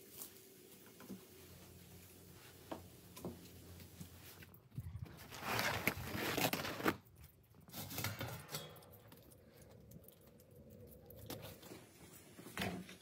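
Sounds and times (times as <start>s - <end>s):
cloth cover rustling: 5.1s - 7.0s.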